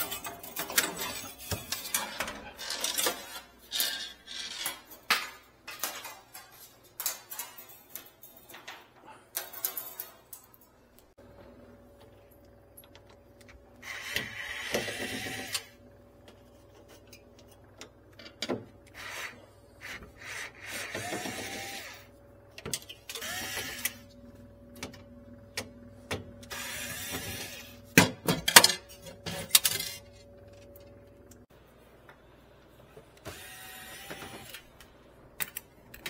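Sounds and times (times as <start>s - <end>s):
electric screwdriver whirring: 20.7s - 22.0s, 23.2s - 24.0s, 33.3s - 34.6s.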